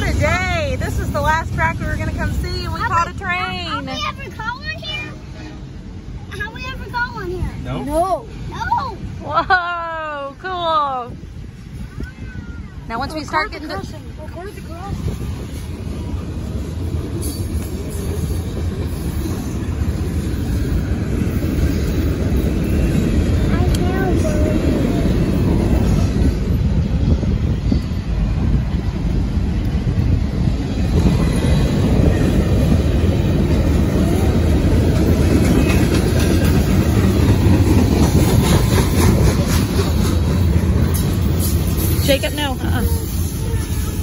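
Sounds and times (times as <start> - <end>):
train wheels rumbling on rails: 0.0 - 44.0.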